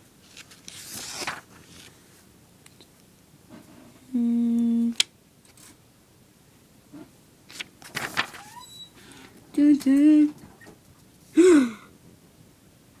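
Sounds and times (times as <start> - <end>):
book pages rustling: 0.2 - 2.1, 7.5 - 8.5
person humming low note: 4.1 - 5.0.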